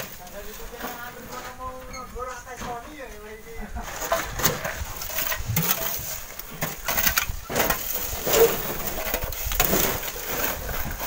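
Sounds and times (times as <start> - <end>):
stone block scraping on sand: 7.0 - 11.0.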